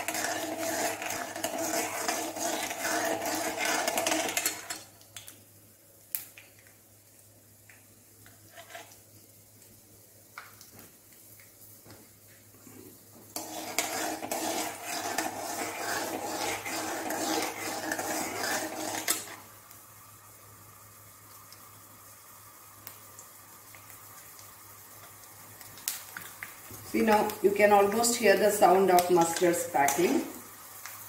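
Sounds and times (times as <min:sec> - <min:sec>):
spoon scraping metal pan: 0:00.0 - 0:04.8, 0:08.5 - 0:09.0, 0:13.4 - 0:19.4
oil sizzling: 0:00.0 - 0:31.0.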